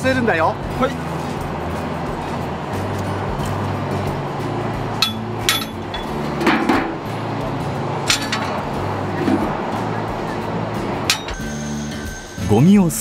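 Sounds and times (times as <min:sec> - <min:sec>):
metal dustpan knocking on bin: 0:05.0 - 0:07.0
rattle of debris: 0:08.0 - 0:08.8.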